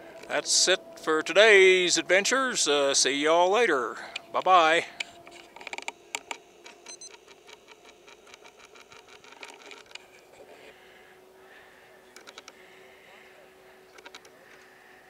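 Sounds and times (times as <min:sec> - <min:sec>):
faint steady hum: 0:00.0 - 0:15.0
camcorder zoom motor ticking: 0:05.0 - 0:10.0.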